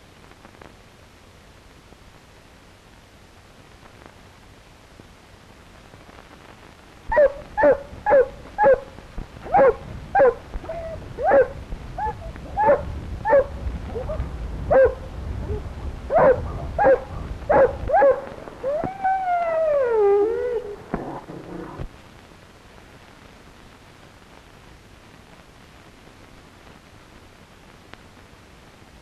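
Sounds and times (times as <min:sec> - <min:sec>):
dog barking: 0:07.1 - 0:18.4.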